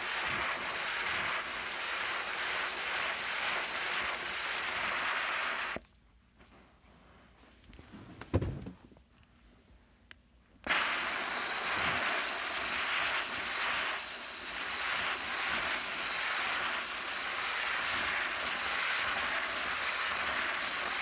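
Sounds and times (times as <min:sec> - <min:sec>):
steam cleaner hissing: 0:00.0 - 0:05.8, 0:10.7 - 0:21.0.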